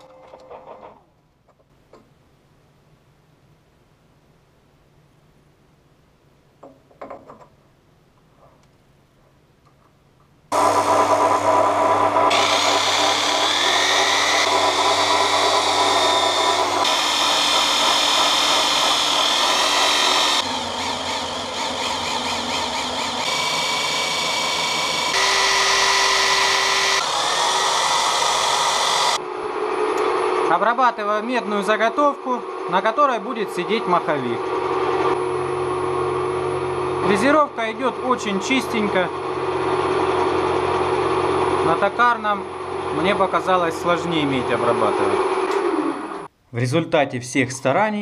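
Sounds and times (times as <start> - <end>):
motor whine: 10.5 - 30.2.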